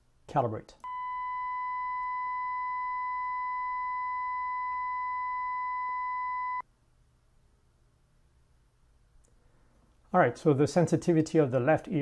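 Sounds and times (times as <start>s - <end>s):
steady calibration tone: 0.8s - 6.6s.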